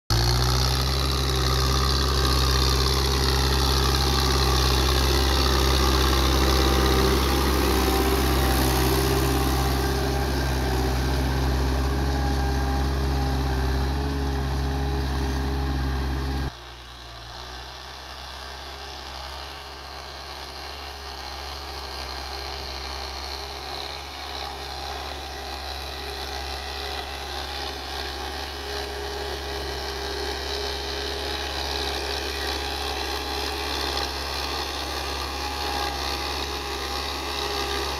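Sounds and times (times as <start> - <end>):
tractor diesel engine running: 0.1 - 37.9.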